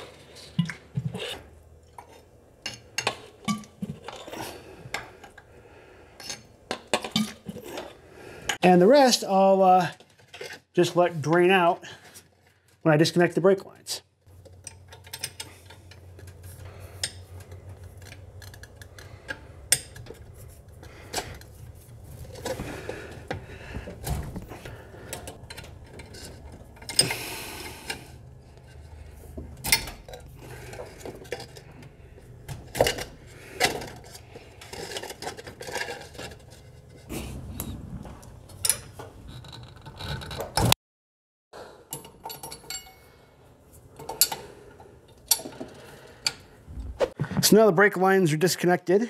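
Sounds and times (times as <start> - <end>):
wrench clinking on metal fittings: 41.9 - 43.0.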